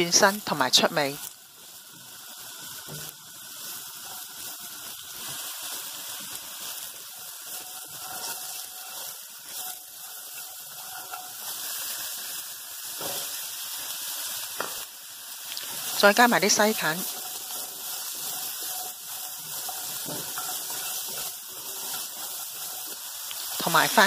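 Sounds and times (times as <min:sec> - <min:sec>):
food sizzling in hot oil: 0:00.0 - 0:24.0.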